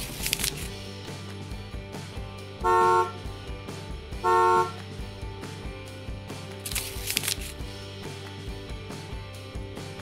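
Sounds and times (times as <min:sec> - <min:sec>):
background music: 0:00.0 - 0:10.0
horn blasts: 0:02.6 - 0:03.3, 0:04.2 - 0:04.8.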